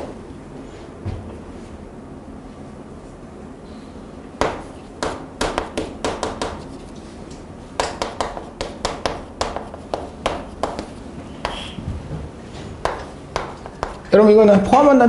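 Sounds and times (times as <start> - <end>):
chalk tapping on a chalkboard: 4.4 - 7.0, 7.8 - 11.8, 12.8 - 14.1.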